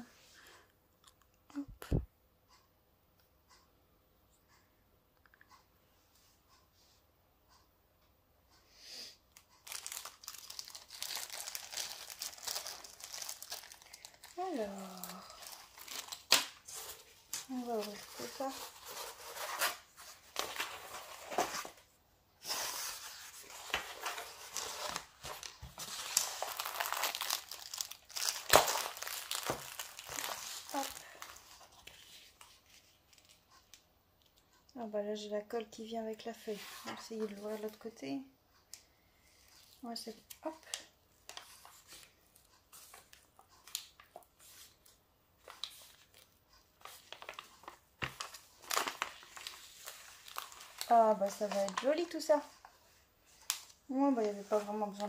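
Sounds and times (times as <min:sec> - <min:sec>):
plastic film crinkling: 0:09.4 - 0:21.8, 0:22.4 - 0:34.5, 0:39.5 - 0:52.7, 0:53.3 - 0:55.0.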